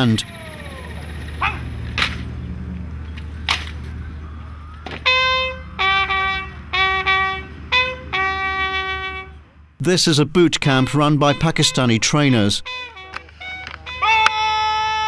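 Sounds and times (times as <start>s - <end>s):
bugle call: 5.0s - 9.4s, 10.6s - 15.0s.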